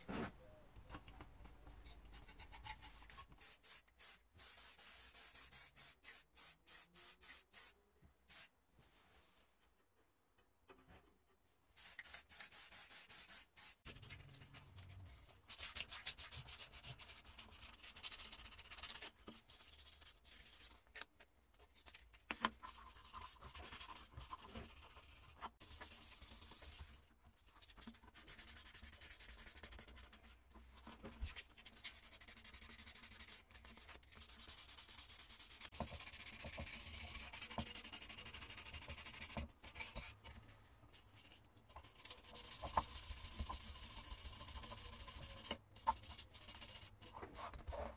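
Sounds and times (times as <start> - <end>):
aerosol spray hiss: 3.4 - 8.5, 11.8 - 13.8.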